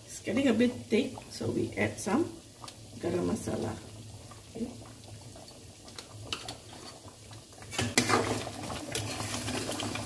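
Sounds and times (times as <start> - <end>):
metal spoon scraping a pan: 7.7 - 9.6.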